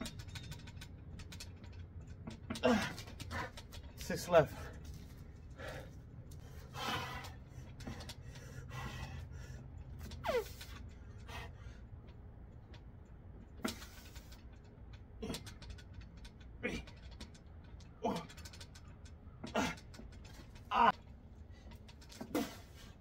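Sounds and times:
man grunting: 0:02.6 - 0:03.0, 0:20.7 - 0:20.9
man breathing hard: 0:04.5 - 0:11.9.

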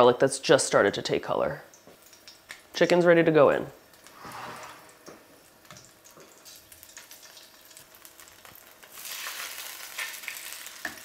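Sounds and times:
garlic frying in oil: 0:00.0 - 0:04.2, 0:04.9 - 0:11.0
chicken sizzling in pan: 0:03.8 - 0:11.0
faint crackles: 0:03.8 - 0:11.0.

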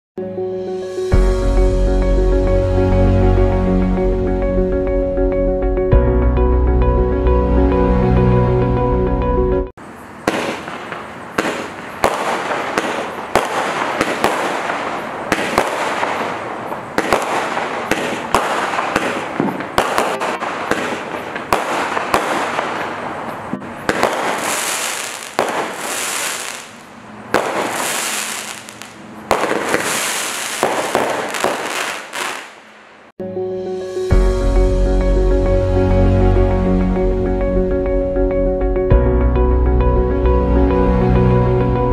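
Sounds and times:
firework launch reports: 0:10.0 - 0:32.8
firework crackling and fizzing: 0:10.1 - 0:33.1.

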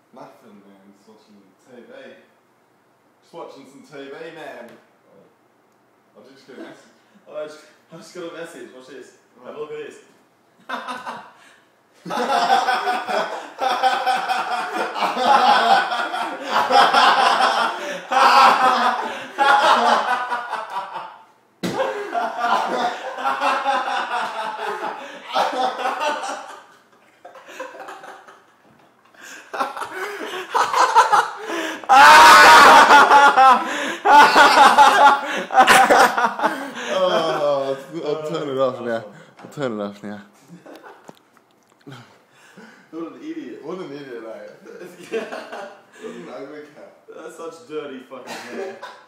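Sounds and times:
men laughing loudly: 0:10.6 - 0:11.4, 0:12.0 - 0:28.5, 0:29.2 - 0:38.5, 0:44.6 - 0:46.3, 0:48.2 - 0:49.0.

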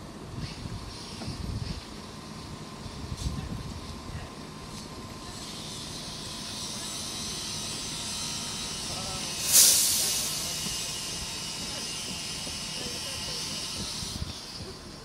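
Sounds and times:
train engine idling: 0:00.0 - 0:15.0
compressed air hissing: 0:06.7 - 0:14.7.

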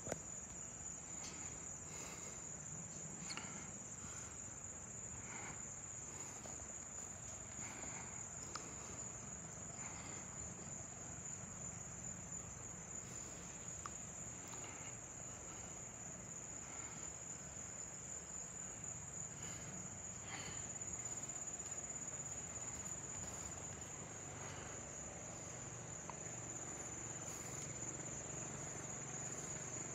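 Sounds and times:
insects trilling: 0:00.0 - 0:29.9.

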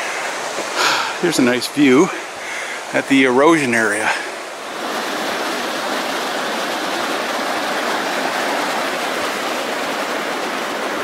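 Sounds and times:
whitewater rapids rushing: 0:00.0 - 0:11.0.

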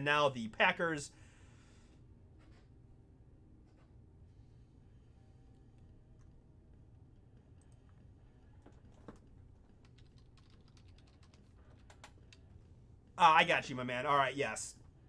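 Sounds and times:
low room hum: 0:00.0 - 0:15.0
keyboard typing: 0:07.6 - 0:12.5.

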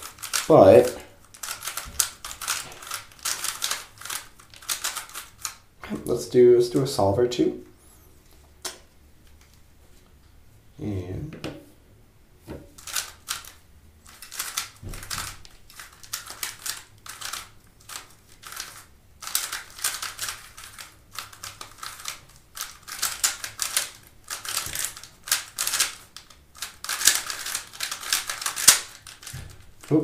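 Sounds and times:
speed cube clicking: 0:00.0 - 0:05.6, 0:12.8 - 0:30.0.

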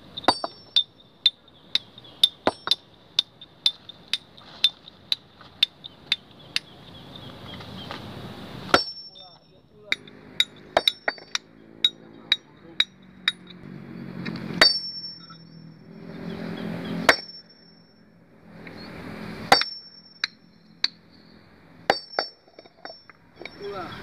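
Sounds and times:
hammer striking stone: 0:00.3 - 0:00.9, 0:01.7 - 0:03.3, 0:08.7 - 0:13.5, 0:14.6 - 0:15.4, 0:17.1 - 0:17.5, 0:19.5 - 0:21.0, 0:21.9 - 0:23.6.

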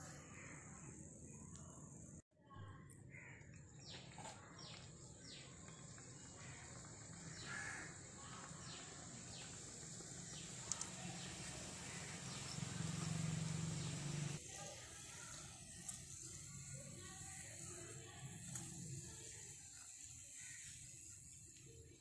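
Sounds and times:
crows cawing: 0:03.1 - 0:03.4, 0:06.4 - 0:08.4.

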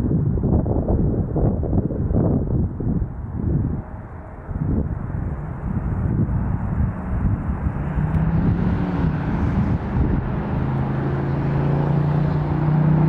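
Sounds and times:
steady low hum: 0:00.7 - 0:11.7
distant jet engines rumbling: 0:00.8 - 0:13.0.

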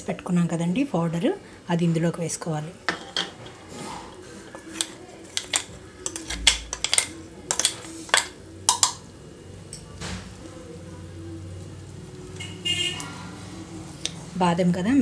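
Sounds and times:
metal spoon clinking on steel: 0:05.4 - 0:09.0.

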